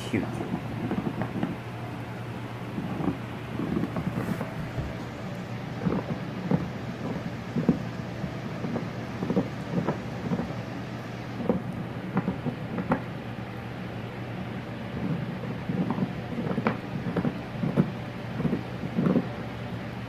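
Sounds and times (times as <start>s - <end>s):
puppy chewing: 0.4s - 1.6s, 2.7s - 7.8s.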